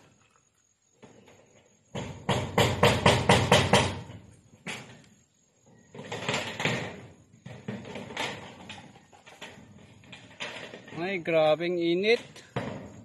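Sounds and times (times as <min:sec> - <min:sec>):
drill knocking on metal roof: 0:01.9 - 0:04.2.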